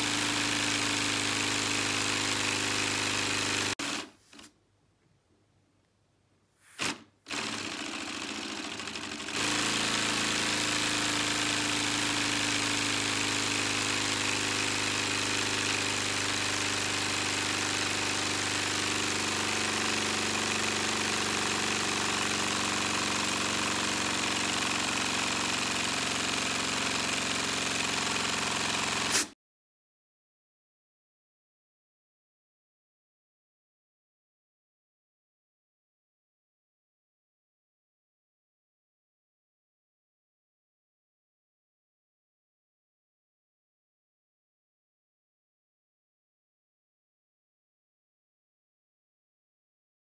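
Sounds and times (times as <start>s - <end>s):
pneumatic engine buzzing with hiss: 28.1s - 29.4s.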